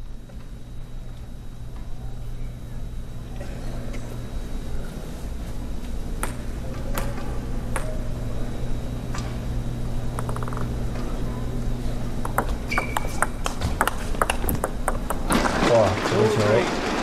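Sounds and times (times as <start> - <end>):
arena hum: 0.0 - 16.7
table tennis ball bouncing: 10.2 - 10.7, 12.2 - 15.5.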